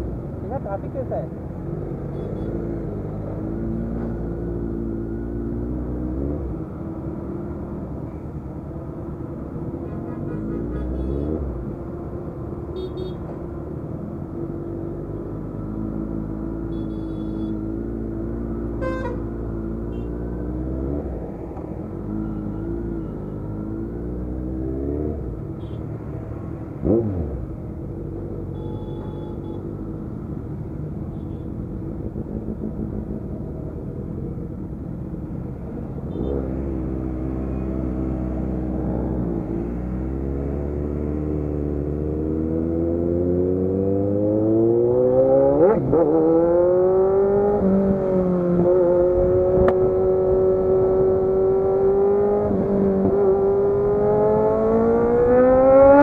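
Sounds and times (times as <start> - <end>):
distant vehicle horns honking: 28.5 - 29.7
motorcycle engine revving: 36.1 - 56.0.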